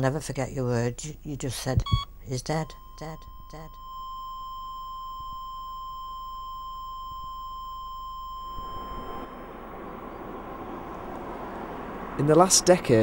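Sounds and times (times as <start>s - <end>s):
heart monitor flatline beep: 1.8s - 9.5s
road traffic passing: 8.6s - 13.0s.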